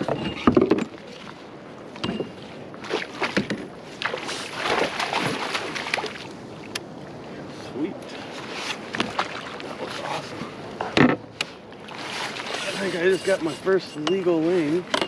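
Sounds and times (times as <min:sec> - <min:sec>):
water splashing and sloshing: 0:00.0 - 0:15.0
sharp knocks and clicks: 0:03.3 - 0:03.7.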